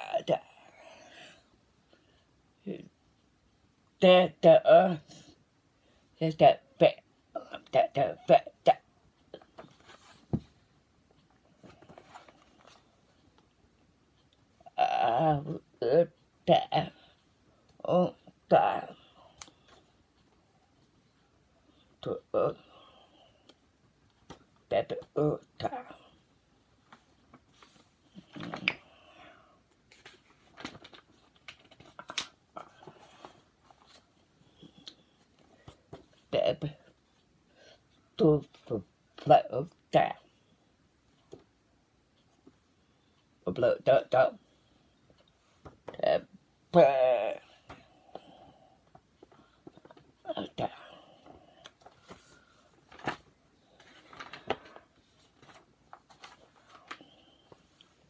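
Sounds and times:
book pages rustling: 0:09.4 - 0:10.7, 0:11.5 - 0:13.4, 0:29.8 - 0:36.3, 0:51.6 - 0:58.0.

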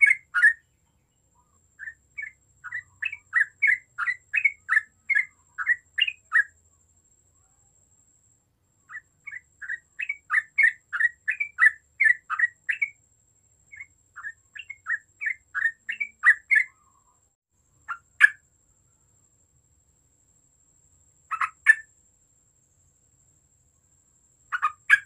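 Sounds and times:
bulbul chirping song: 0:00.0 - 0:06.7, 0:08.8 - 0:18.5, 0:21.2 - 0:22.0, 0:24.2 - 0:25.0.

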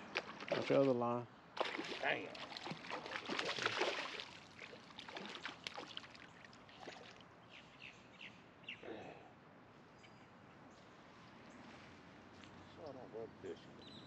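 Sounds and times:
faint outdoor background: 0:00.0 - 0:14.0
fish splashing in water: 0:00.1 - 0:00.9, 0:01.6 - 0:07.2.

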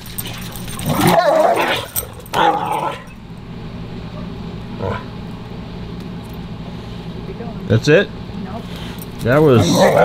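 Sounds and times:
dogs play-fighting vocalising: 0:00.4 - 0:03.2.

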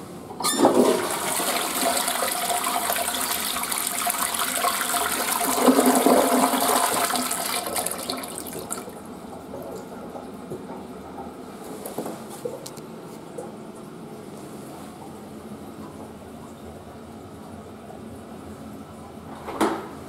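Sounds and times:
toilet flush click: 0:00.3 - 0:08.9
toilet water rushing: 0:00.4 - 0:10.3.

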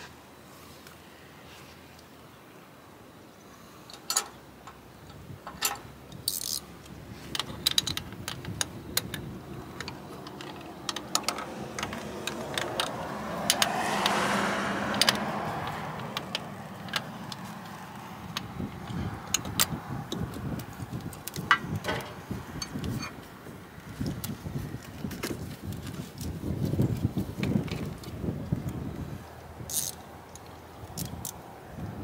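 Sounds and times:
metal tools clinking and clicking: 0:03.9 - 0:04.4, 0:05.4 - 0:06.6, 0:07.3 - 0:13.7.

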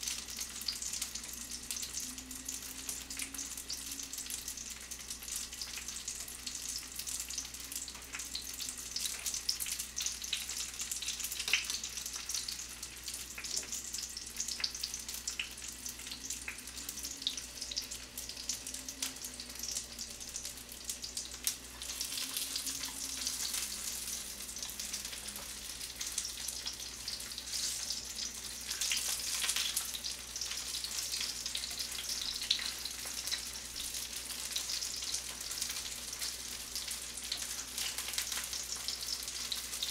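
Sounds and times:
dumplings sizzling in a pan: 0:00.0 - 0:39.9
pot of noodles boiling: 0:00.0 - 0:39.9.

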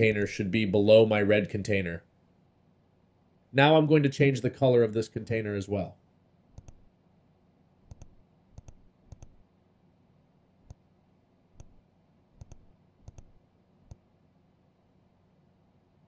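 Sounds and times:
faint computer mouse clicks: 0:06.5 - 0:06.9, 0:07.9 - 0:09.4, 0:10.6 - 0:10.8, 0:11.6 - 0:11.8, 0:12.4 - 0:14.0.

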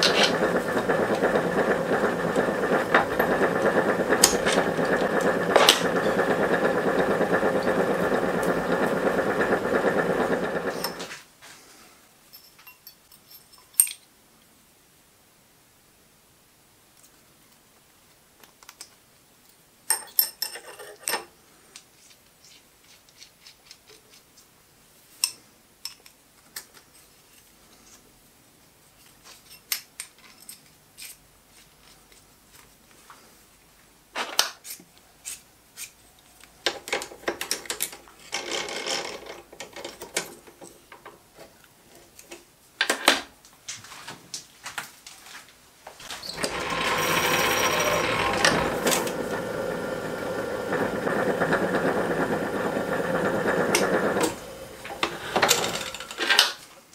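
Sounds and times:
steel parts scraping together: 0:53.9 - 0:56.6.

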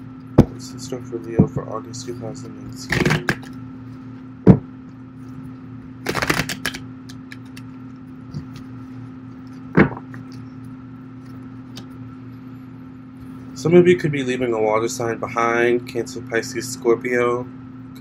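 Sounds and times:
low hum: 0:00.0 - 0:16.4
cards shuffling: 0:02.8 - 0:03.6, 0:06.0 - 0:07.7.

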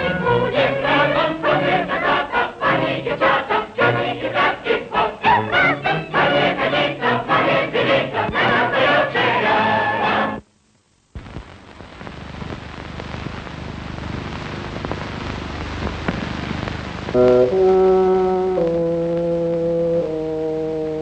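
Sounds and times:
chorus singing rhythmic song: 0:00.0 - 0:10.5
steady hiss: 0:00.0 - 0:21.0.

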